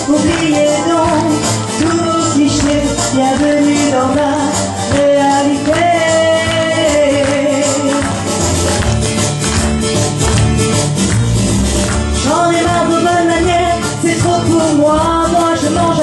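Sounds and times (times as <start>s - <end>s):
woman singing into a microphone: 0.0s - 8.4s, 12.2s - 16.0s
deep bass line: 0.0s - 16.0s
upbeat song with percussion: 0.0s - 16.0s.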